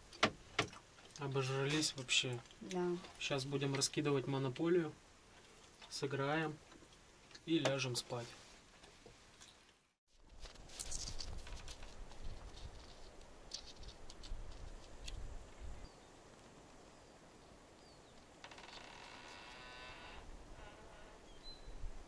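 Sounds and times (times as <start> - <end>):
faint bird chirps: 21.2 - 21.9.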